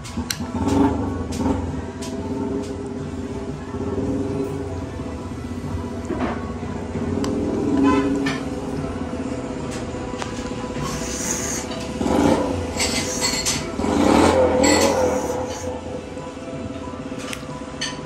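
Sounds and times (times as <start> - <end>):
background music: 0.0 - 18.0
person slurping noodles: 10.8 - 15.7.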